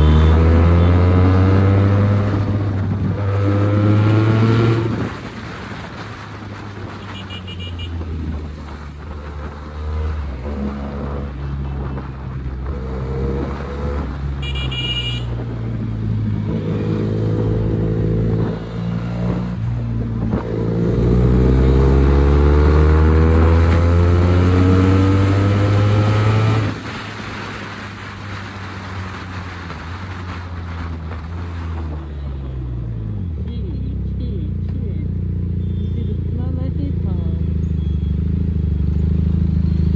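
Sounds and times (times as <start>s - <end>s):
motorcycle engine accelerating: 0.0s - 5.8s, 15.4s - 32.3s, 32.9s - 39.9s
brief high beeps: 37.3s - 38.9s.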